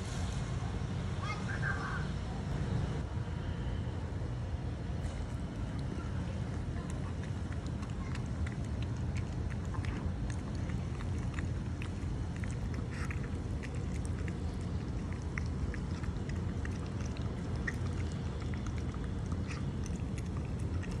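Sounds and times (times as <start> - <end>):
dog chewing food: 6.5 - 21.0.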